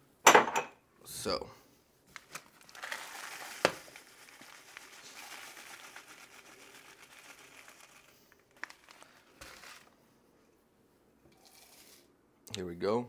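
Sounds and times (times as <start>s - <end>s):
paper bag crinkling: 2.1s - 10.0s
oats pouring rustle: 2.4s - 10.0s, 11.3s - 12.1s.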